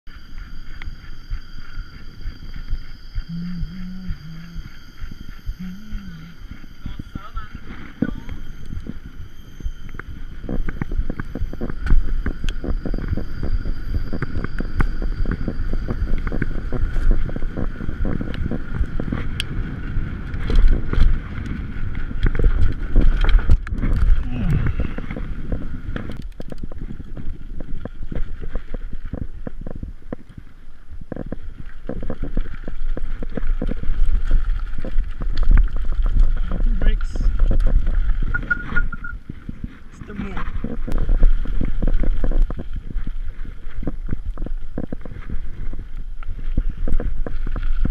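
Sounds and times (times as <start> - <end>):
wind buffeting microphone: 0.2 - 47.9.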